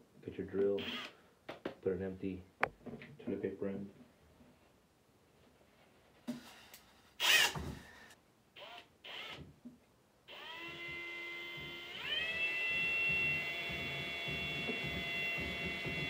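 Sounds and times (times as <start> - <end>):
cordless drill whining: 0.8 - 1.2, 7.2 - 9.5, 10.3 - 16.0.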